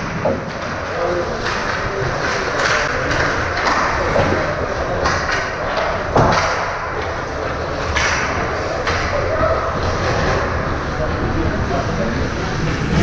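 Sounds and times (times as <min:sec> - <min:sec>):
hockey knocks and thuds: 0:00.0 - 0:07.2
crowd noise: 0:00.0 - 0:13.0.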